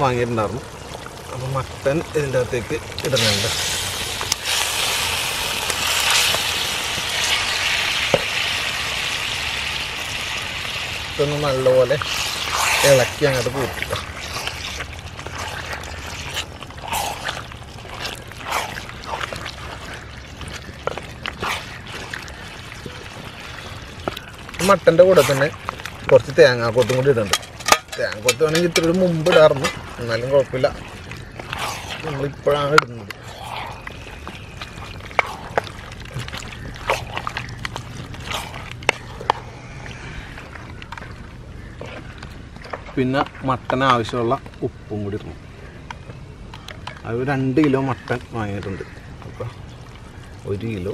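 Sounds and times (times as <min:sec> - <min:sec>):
spatula stirring wet meat: 0:00.4 - 0:39.4.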